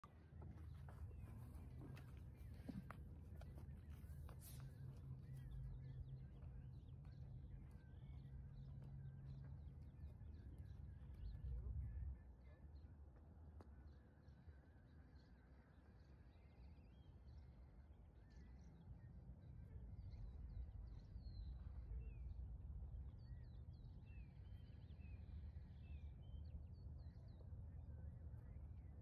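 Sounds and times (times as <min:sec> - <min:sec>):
small birds chirping: 0:00.0 - 0:12.9
wind rumble on microphone: 0:00.2 - 0:12.9.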